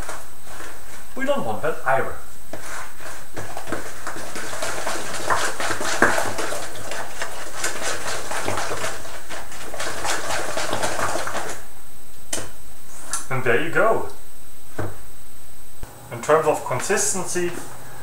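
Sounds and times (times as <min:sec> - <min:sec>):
batter squelching in bowl: 0:02.5 - 0:11.7.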